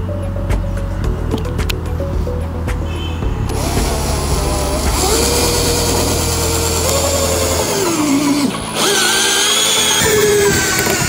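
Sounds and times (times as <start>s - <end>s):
cordless drill motor whine: 3.5s - 11.0s.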